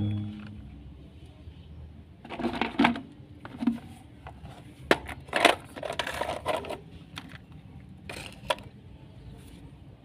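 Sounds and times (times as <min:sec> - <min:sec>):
plastic toy vehicles knocking: 0:02.3 - 0:03.8.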